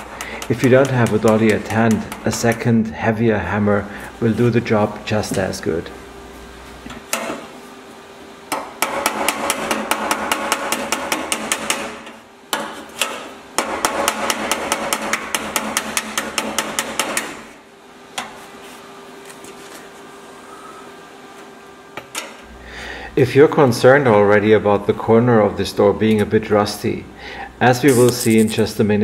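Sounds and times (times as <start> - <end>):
hammer tapping sheet steel: 0.0 - 2.7, 8.5 - 17.6
faint steady hum: 0.0 - 29.0.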